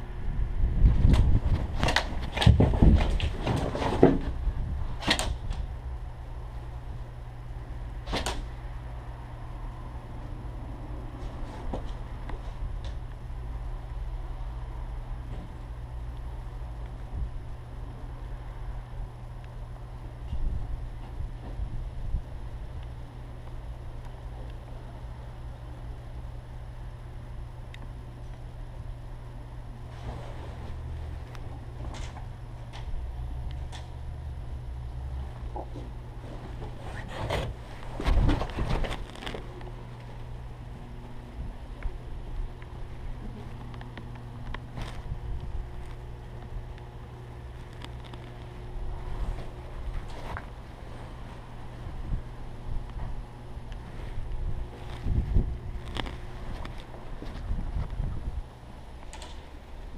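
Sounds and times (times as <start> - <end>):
low outdoor rumble: 0.0 - 59.9
sharp knocks and cracks: 8.1 - 8.5.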